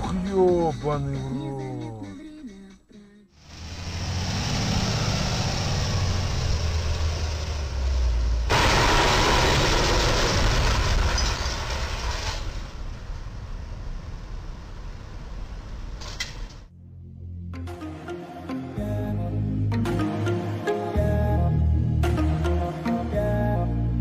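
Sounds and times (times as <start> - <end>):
traffic: 3.4 - 10.0
truck engine rumble: 3.4 - 16.7.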